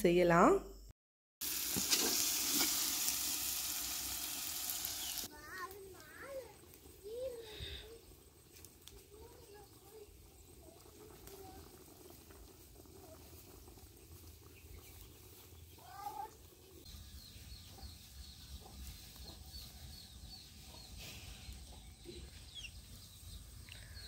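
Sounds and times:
small high bird chirps: 0:04.8 - 0:05.3, 0:21.7 - 0:24.0.

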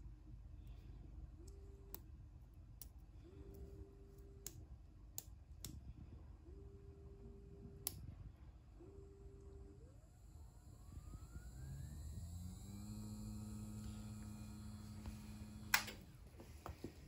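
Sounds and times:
electric motor whine: 0:08.8 - 0:16.1.

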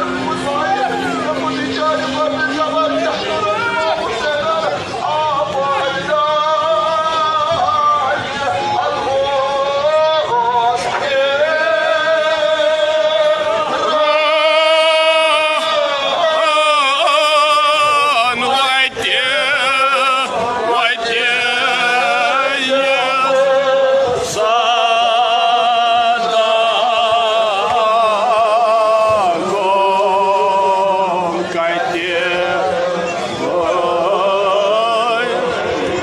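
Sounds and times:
man singing a lament: 0:00.0 - 0:36.0.

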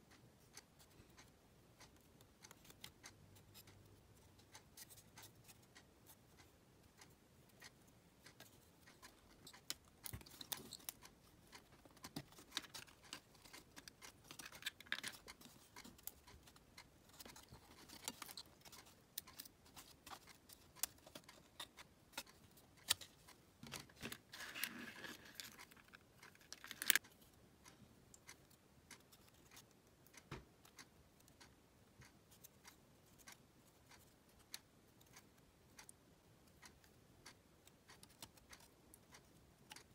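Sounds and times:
wooden parts scraping: 0:23.7 - 0:27.0.

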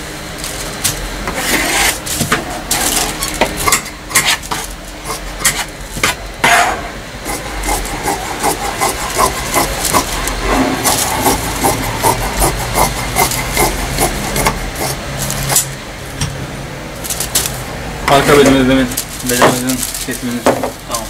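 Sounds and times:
paper rustling: 0:00.4 - 0:03.6, 0:08.8 - 0:11.8, 0:17.0 - 0:17.6, 0:18.2 - 0:21.0
shears snipping fabric: 0:00.4 - 0:06.2, 0:07.3 - 0:15.8.

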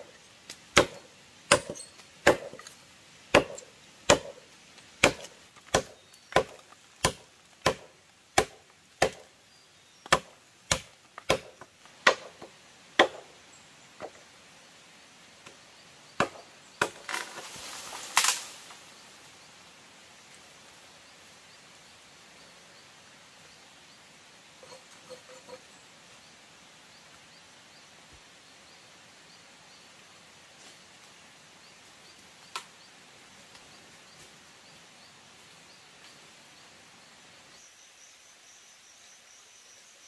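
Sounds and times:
rustle: 0:00.0 - 0:40.0
tool chopping into wood: 0:00.7 - 0:02.7, 0:03.3 - 0:04.4, 0:05.0 - 0:09.3, 0:10.1 - 0:13.3, 0:16.2 - 0:17.3.

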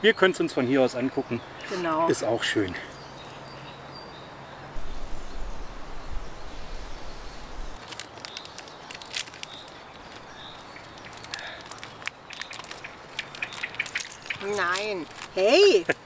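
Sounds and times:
wind rumble on microphone: 0:04.8 - 0:07.8.

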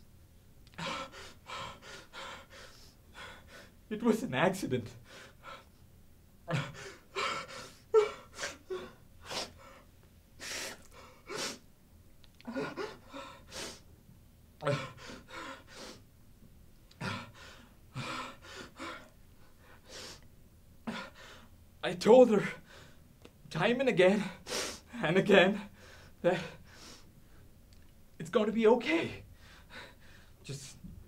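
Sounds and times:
man sobbing: 0:06.5 - 0:09.6, 0:12.4 - 0:13.6, 0:14.6 - 0:15.6, 0:16.9 - 0:17.4, 0:24.1 - 0:26.6.

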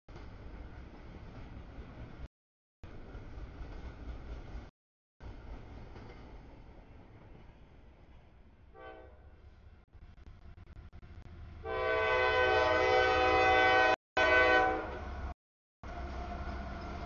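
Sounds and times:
low rumble of train: 0:00.1 - 0:17.0
locomotive air horn blasts: 0:08.7 - 0:09.3, 0:11.6 - 0:15.1.

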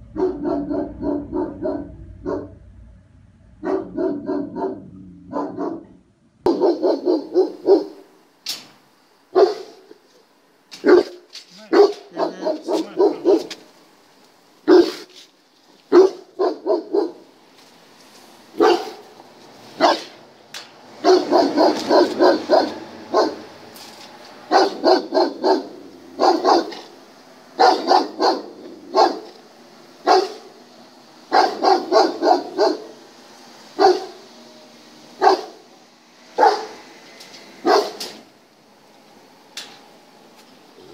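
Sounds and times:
dog barking: 0:00.1 - 0:02.6, 0:03.6 - 0:08.1, 0:09.3 - 0:10.0, 0:10.8 - 0:13.6, 0:14.6 - 0:15.1, 0:15.9 - 0:17.3, 0:18.6 - 0:19.1, 0:19.8 - 0:20.2, 0:21.0 - 0:23.5, 0:24.5 - 0:27.0, 0:27.6 - 0:29.4, 0:30.0 - 0:30.5, 0:31.3 - 0:33.0, 0:33.8 - 0:34.2, 0:35.2 - 0:35.6, 0:36.4 - 0:36.8, 0:37.6 - 0:38.2.

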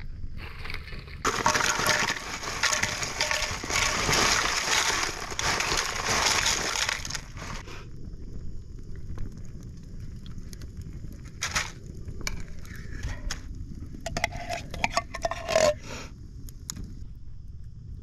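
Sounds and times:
spoon scraping tin can: 0:01.3 - 0:07.6, 0:14.1 - 0:15.8.

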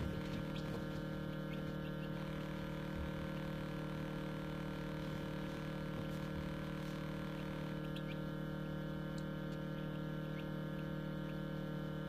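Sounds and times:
chicks peeping: 0:00.0 - 0:02.6, 0:07.8 - 0:08.4, 0:09.5 - 0:11.5
incubator humming: 0:00.0 - 0:12.0.

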